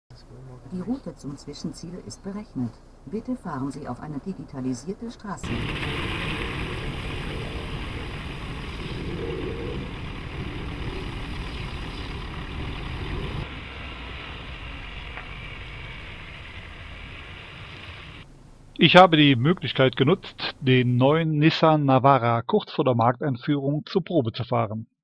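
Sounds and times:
diesel engine running: 0:05.4 - 0:18.2.

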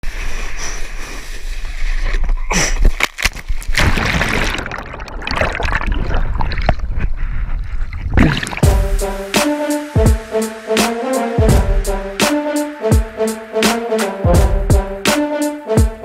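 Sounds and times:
water rushing and splashing: 0:08.2 - 0:08.9.

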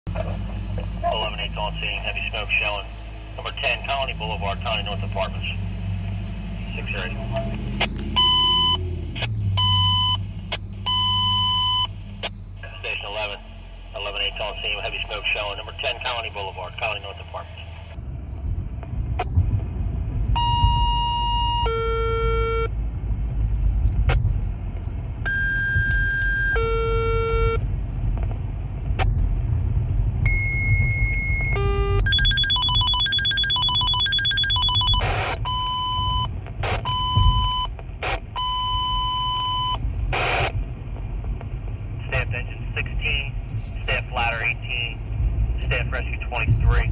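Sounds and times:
car engine and road rumble: 0:00.0 - 0:46.9
radio alert tones: 0:00.1 - 0:18.0, 0:31.4 - 0:40.6, 0:42.0 - 0:45.0.

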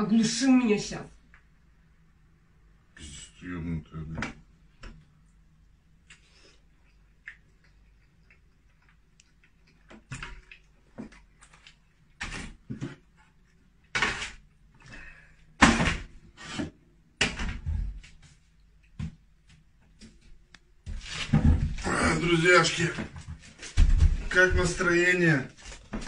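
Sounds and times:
kitchen knocks and bangs: 0:15.6 - 0:16.2.

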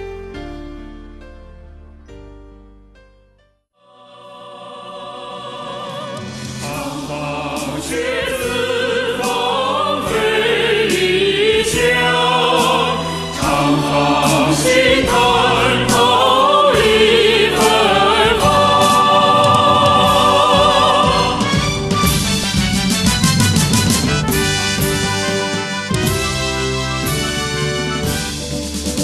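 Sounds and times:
choir singing long notes: 0:03.8 - 0:22.4.

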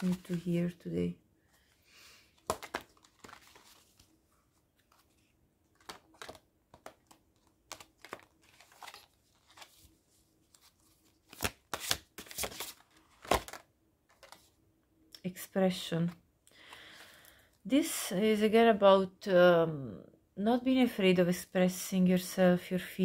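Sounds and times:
cards being shuffled: 0:00.0 - 0:00.6, 0:02.4 - 0:14.5.

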